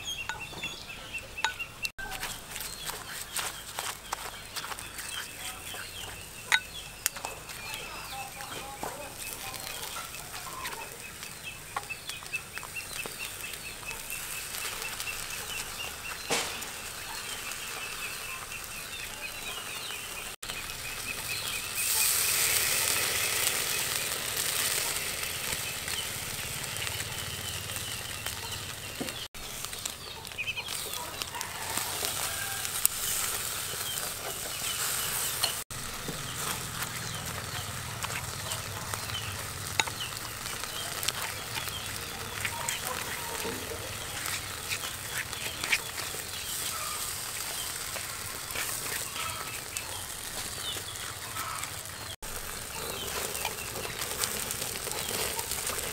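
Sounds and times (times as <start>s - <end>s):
chicken sizzling on charcoal grill: 0.0s - 55.9s
chickens clucking: 0.0s - 55.9s.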